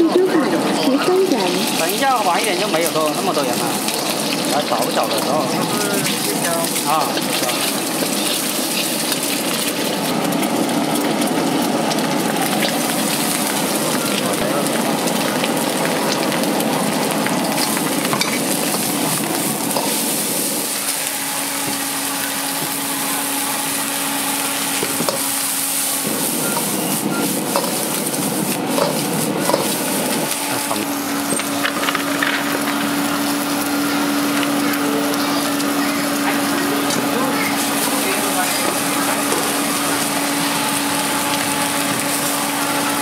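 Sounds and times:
vegetables sizzling in a wok: 0:00.0 - 0:43.0
metal ladle scraping wok: 0:17.6 - 0:21.8.

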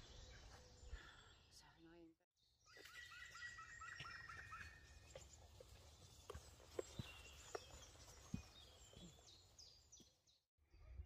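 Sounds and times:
faint birds calling: 0:02.6 - 0:10.2.

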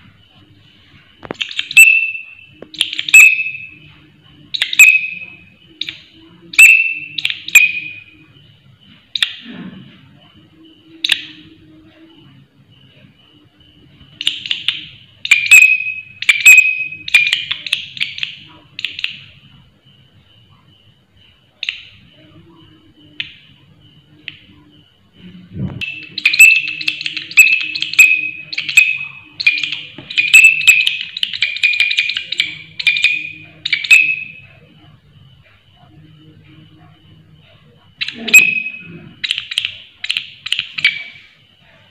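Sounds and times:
katydid rasping chirps: 0:25.8 - 0:34.6.

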